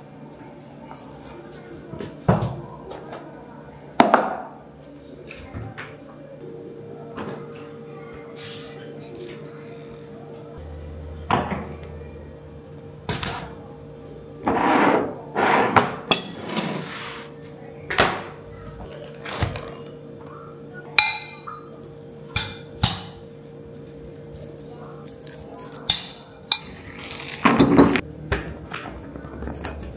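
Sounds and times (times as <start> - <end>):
faint steady hum: 9.0 - 27.2
rustling scrapes: 14.5 - 17.3, 26.6 - 28.0.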